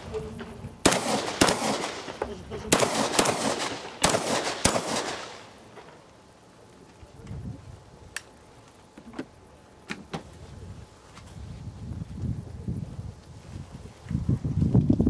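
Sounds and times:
shotgun shots with echo: 0.8 - 5.5
faint sharp clicks: 8.1 - 8.8.

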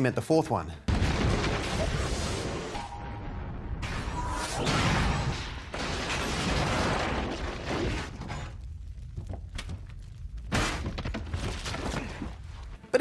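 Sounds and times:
metal refrigerator crashing: 10.5 - 12.2.

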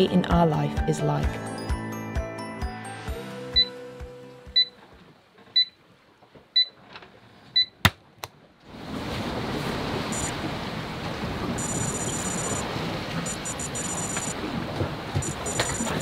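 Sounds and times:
wind and sea rushing: 8.6 - 16.0
digital alarm clock beeping: 10.1 - 10.4, 11.6 - 12.6, 13.2 - 14.4, 15.2 - 16.0
faint high electronic beeps: 10.1 - 10.4, 11.6 - 12.6, 13.2 - 14.4, 15.2 - 16.0.

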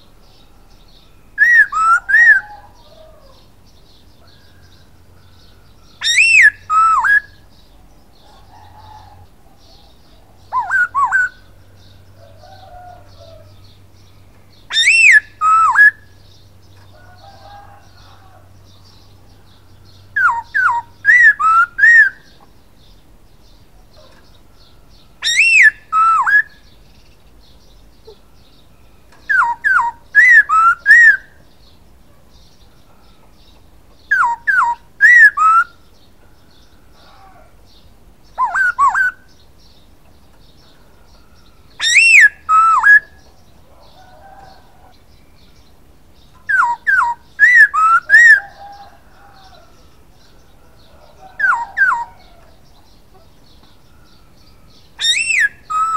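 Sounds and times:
bird singing whistled phrases: 1.0 - 2.6, 6.0 - 7.4, 10.5 - 11.5, 14.7 - 16.1, 20.2 - 22.4, 25.2 - 26.6, 29.3 - 31.3, 34.1 - 35.8, 38.4 - 39.3, 41.8 - 43.2, 46.5 - 48.5, 53.9 - 55.9.

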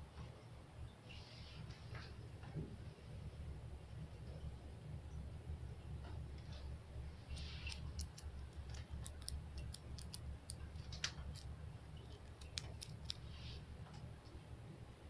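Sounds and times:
faint low hum: 0.0 - 15.0
fingernails scratching: 7.3 - 13.6
fingernails tapping and clicking: 7.7 - 13.2.

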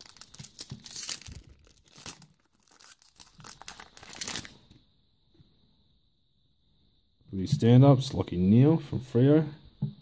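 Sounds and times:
foil wrapper crinkling: 0.0 - 4.7.

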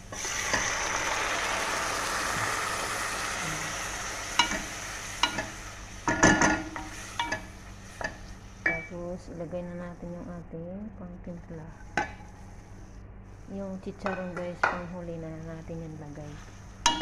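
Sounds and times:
beans sizzling in hot oil: 0.0 - 8.9.

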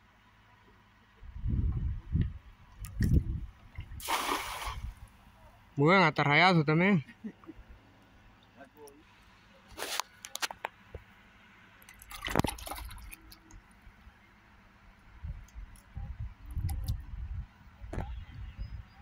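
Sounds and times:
low rumbling: 1.2 - 5.6
water splashing and dripping: 2.8 - 5.0, 11.8 - 13.6.

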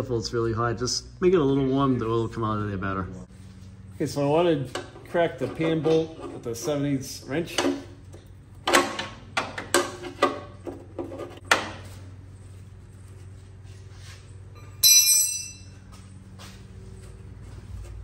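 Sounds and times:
steady low hum: 0.0 - 18.0
bright metallic ring: 14.5 - 16.2.

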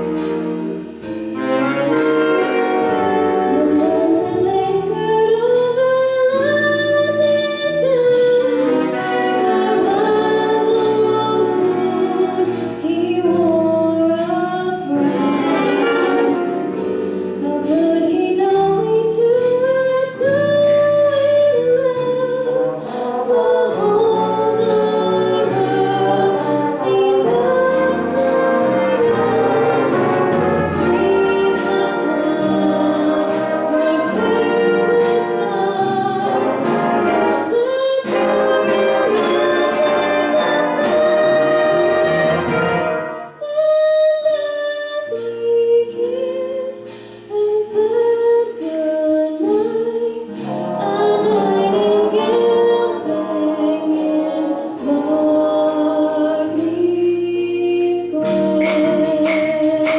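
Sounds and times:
jazz big band playing: 0.0 - 59.9
woman singing: 2.6 - 16.5, 17.4 - 59.9.

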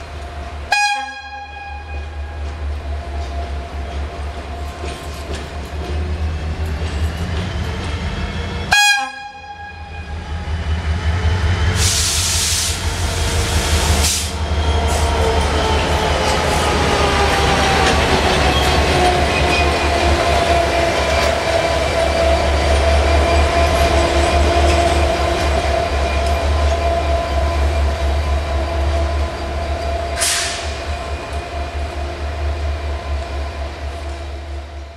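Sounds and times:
diesel locomotive engine rumble: 0.0 - 34.9
short hiss: 30.2 - 30.8.

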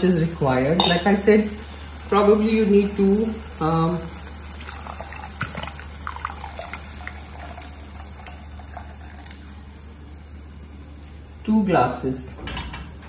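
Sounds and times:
water pouring into a pot: 3.4 - 10.6.

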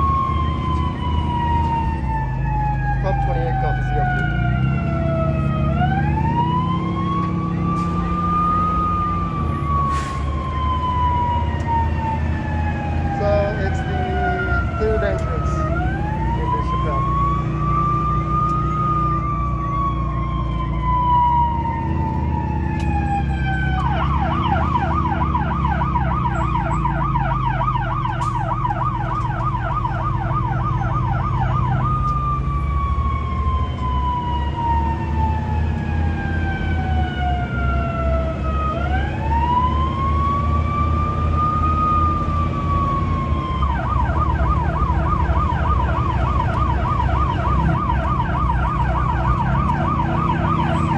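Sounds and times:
fire engine siren wailing and yelping: 0.0 - 50.9
truck engine drone: 0.0 - 50.9.

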